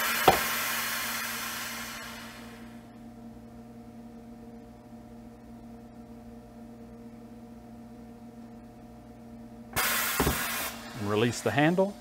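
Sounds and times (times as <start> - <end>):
hydraulic power unit hum: 0.0 - 12.0
hiss: 9.8 - 11.0.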